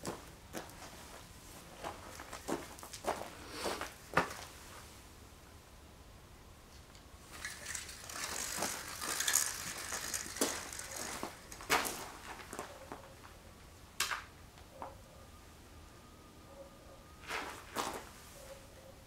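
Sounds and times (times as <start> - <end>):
footsteps crunching on gravel: 0.0 - 4.5, 8.0 - 13.4, 17.3 - 18.1.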